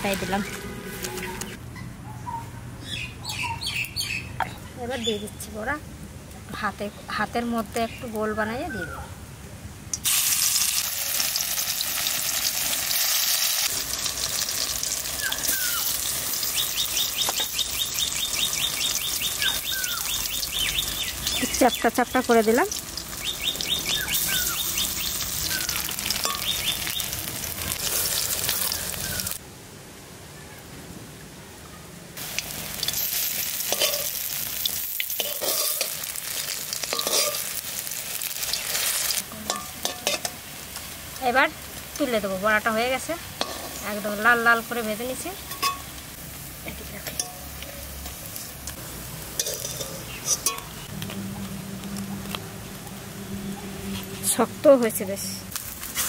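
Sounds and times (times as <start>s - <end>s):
fritter sizzling in hot oil: 9.9s - 29.4s, 32.2s - 56.0s
metal spatula scraping pan: 33.7s - 34.2s, 35.1s - 36.0s, 36.8s - 37.6s, 49.4s - 50.9s.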